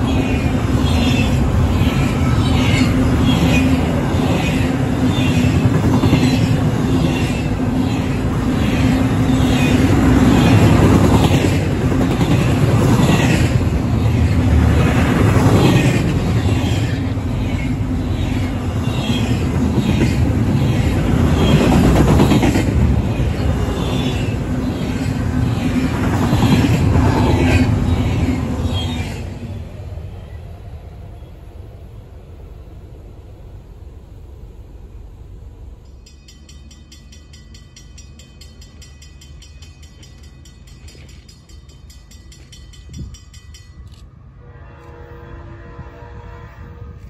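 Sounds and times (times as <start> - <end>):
train wheels rumbling on rail: 0.0 - 47.0
railroad crossing bell ringing: 35.8 - 44.1.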